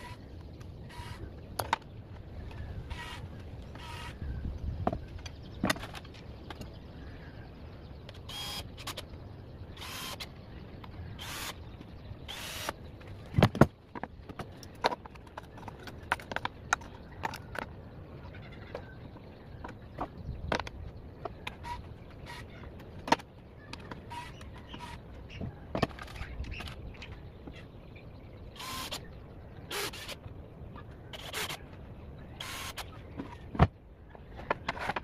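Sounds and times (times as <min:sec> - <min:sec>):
cordless drill running: 0:09.8 - 0:10.2, 0:11.2 - 0:11.5.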